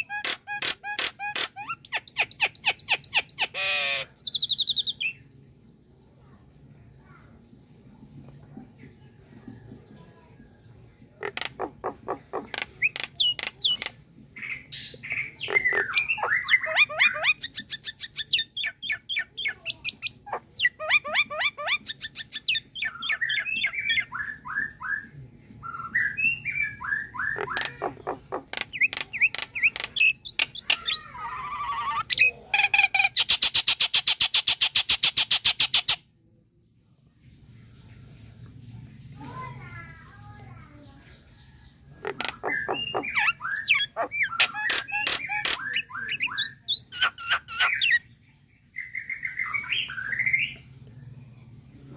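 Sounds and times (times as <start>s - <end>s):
myna calling: 11.2s - 13.9s, 27.2s - 32.7s, 42.0s - 48.0s.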